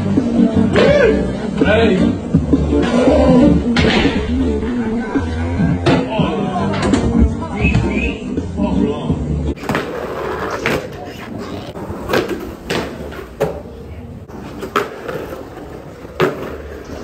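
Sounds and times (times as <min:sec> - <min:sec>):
music: 0:00.0 - 0:13.2
skateboard wheels rolling on concrete: 0:09.2 - 0:17.0
skateboard clacks and knocks: 0:14.4 - 0:17.0.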